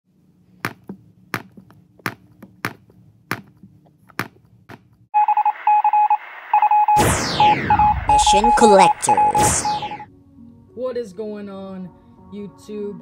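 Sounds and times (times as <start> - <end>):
electronic beeping: 5.2 - 10.1.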